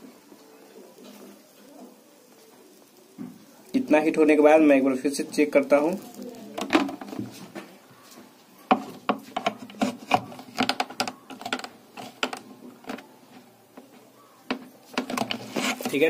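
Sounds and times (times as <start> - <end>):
hard plastic clicks and knocks: 8.7 - 13.1, 14.5 - 15.8.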